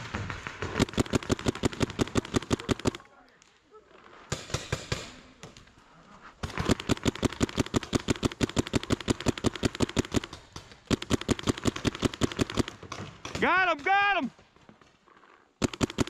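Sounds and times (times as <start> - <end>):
paintball marker firing rapidly: 0.0 - 3.0, 6.4 - 13.6, 15.6 - 16.0.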